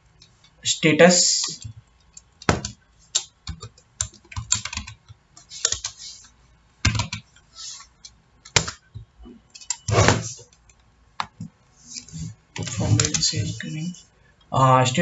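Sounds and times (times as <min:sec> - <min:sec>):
typing on computer keyboard: 0:01.4 - 0:06.2, 0:06.8 - 0:07.4, 0:12.6 - 0:13.4.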